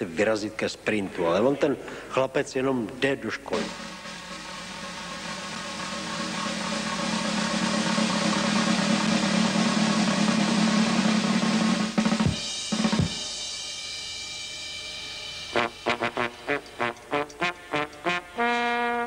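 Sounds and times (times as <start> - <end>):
sharp drum strokes: 3.5 - 18.4
drum roll: 3.5 - 19.0.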